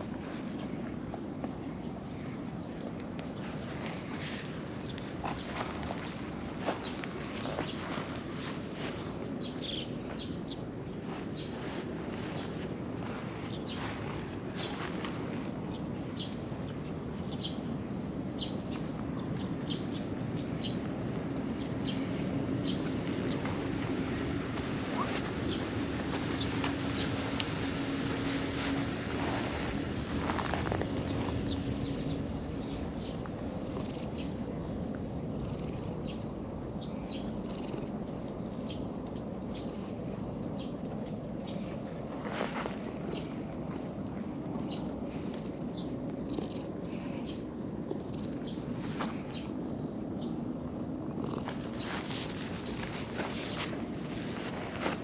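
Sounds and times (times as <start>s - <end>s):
low background rumble: 0.0s - 55.0s
small birds chirping: 0.0s - 55.0s
cat purring: 22.8s - 34.5s, 35.3s - 38.3s, 41.5s - 55.0s.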